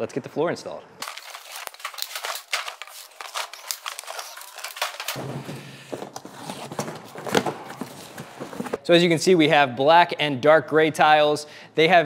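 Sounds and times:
cardboard rustling: 1.0s - 8.8s.

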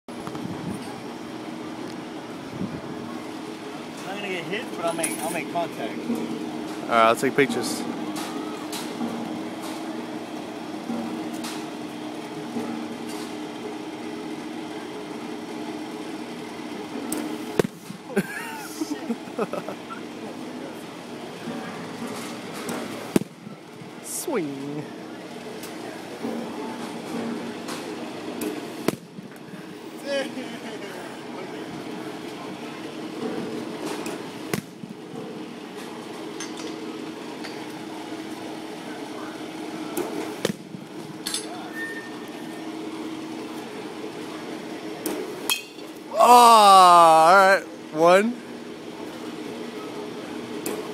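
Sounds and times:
steady mechanical hum: 0.1s - 50.9s
bat cracking ball: 17.2s - 18.0s.

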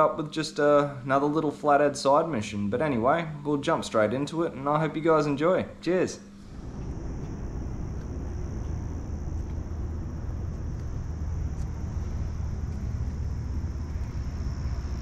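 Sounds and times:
high-pitched hiss: 6.2s - 15.0s
low rumble: 6.4s - 15.0s.

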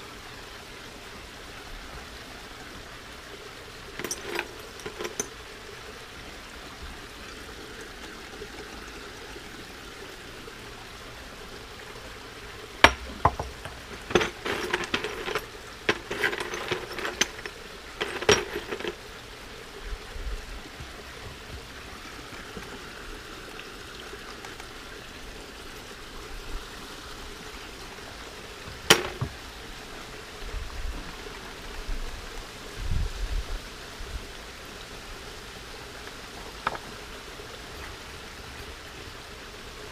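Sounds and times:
steady hiss: 0.0s - 39.9s
rocks clinking in glass bowl: 4.0s - 5.4s, 12.8s - 19.0s, 28.7s - 29.4s.

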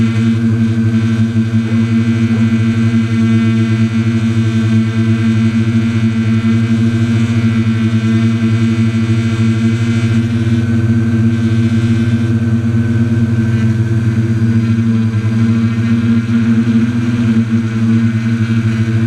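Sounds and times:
drone propellers humming: 0.0s - 19.0s.

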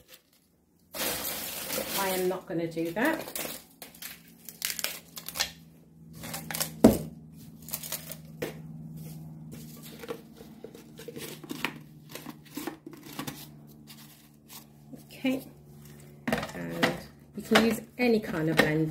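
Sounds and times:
plastic rustling and crinkling: 0.0s - 5.5s.

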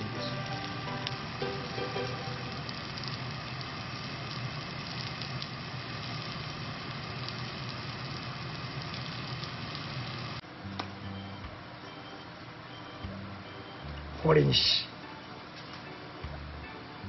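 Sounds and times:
meat sizzling on hot stone: 0.0s - 10.4s
faint crackles: 0.7s - 10.4s.

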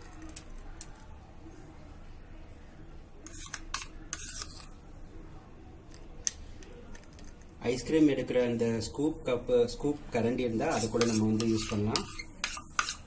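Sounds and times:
spoon scraping metal bowl: 3.2s - 4.8s, 10.5s - 13.0s.

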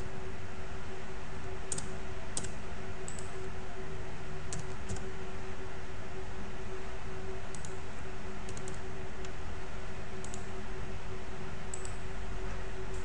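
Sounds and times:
steady electrical hum: 0.0s - 13.0s
keyboard keys clicking: 1.7s - 3.3s, 8.5s - 8.8s.

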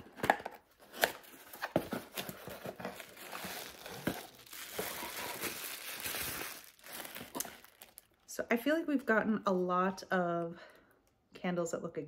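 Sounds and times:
plastic wrapping crinkling: 1.0s - 8.3s.

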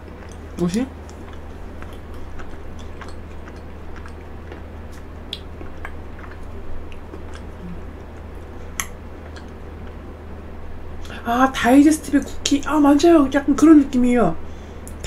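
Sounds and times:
close chewing mouth clicks: 0.0s - 10.0s
steady low hum: 0.0s - 15.0s.

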